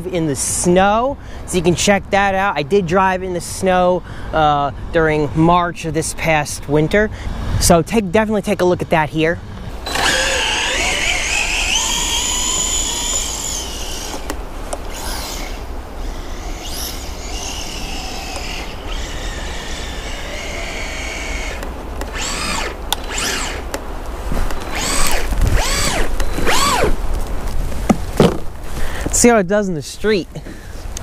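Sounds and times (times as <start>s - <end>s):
electric motor whine: 9.7s - 23.7s, 24.5s - 27.0s.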